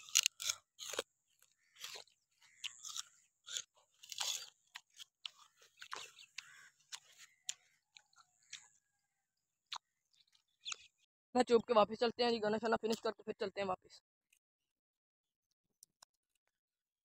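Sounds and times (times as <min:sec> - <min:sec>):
sugarcane being chewed: 0:00.0 - 0:08.8, 0:09.7 - 0:10.9.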